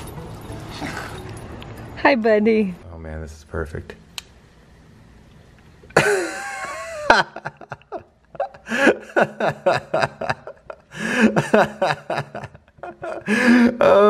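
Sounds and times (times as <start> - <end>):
person laughing hard: 6.0 - 14.0.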